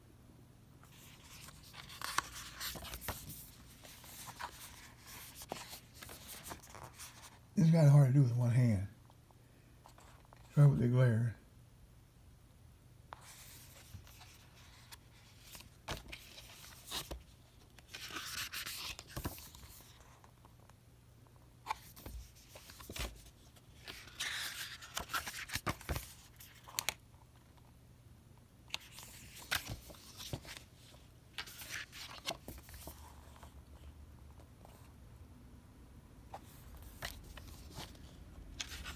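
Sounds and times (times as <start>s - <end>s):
pages turning: 0.8s - 7.4s, 13.2s - 20.4s, 21.6s - 27.5s, 28.7s - 33.9s, 36.3s - 38.9s.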